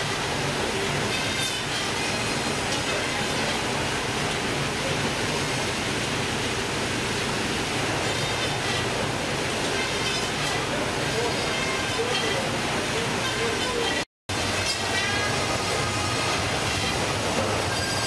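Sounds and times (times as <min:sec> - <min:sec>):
conveyor belts and machinery: 0:00.0 - 0:18.0
water washing: 0:00.0 - 0:18.0.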